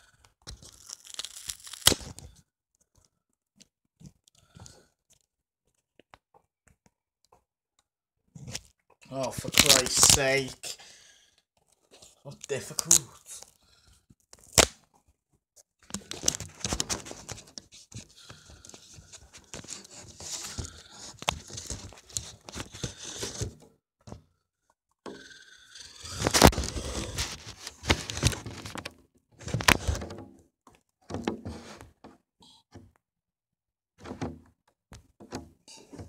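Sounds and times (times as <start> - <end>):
close rustling and crinkling: 14.2 - 23.7, 26.2 - 30.2.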